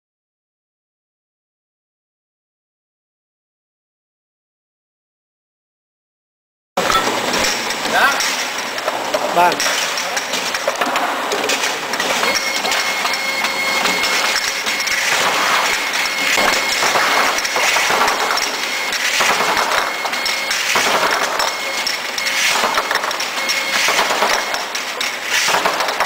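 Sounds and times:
glass jars clinking: 6.8 - 8.4
labeling machine running: 6.8 - 26.0.

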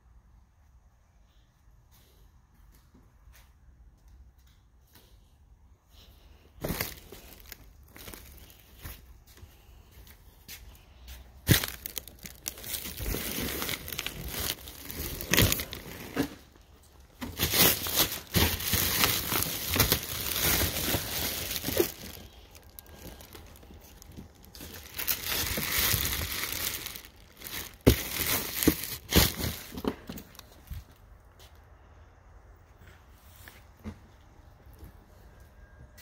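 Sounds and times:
plastic wrap crinkling: 6.6 - 8.9, 11.4 - 31.0.

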